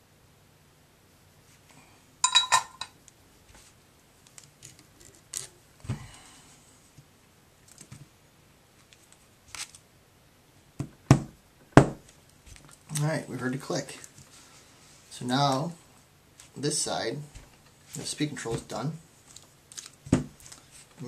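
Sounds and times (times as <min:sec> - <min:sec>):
metallic clink: 0:02.2 - 0:02.9.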